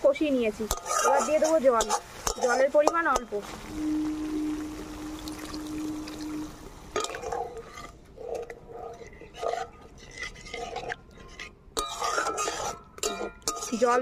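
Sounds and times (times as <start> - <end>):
spatula scraping metal pan: 0.6 - 14.0
spatula clattering against pan: 11.8 - 13.9.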